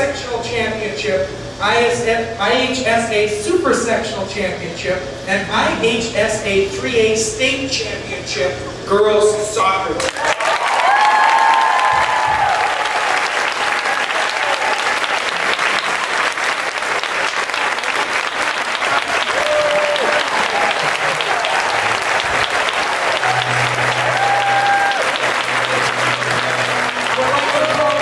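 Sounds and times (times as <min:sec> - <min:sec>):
large crowd applauding: 0:10.0 - 0:28.0.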